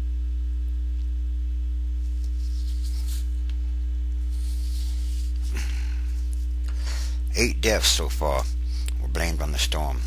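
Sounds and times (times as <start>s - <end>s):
low electrical mains hum: 0.0s - 10.0s.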